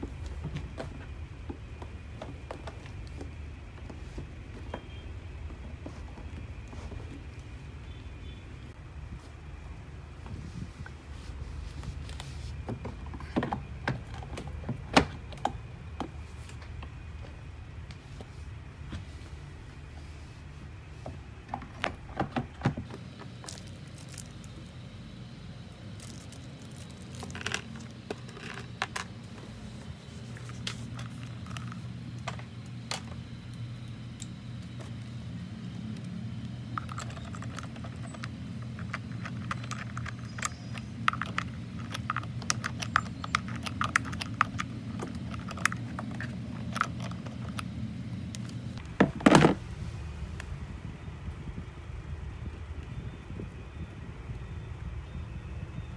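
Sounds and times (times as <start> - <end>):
steady low hum: 0.0 - 55.9.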